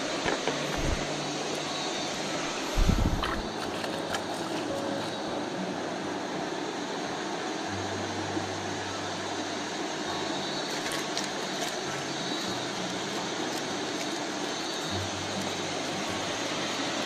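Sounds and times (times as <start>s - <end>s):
stream rushing over rocks: 0.0s - 17.0s.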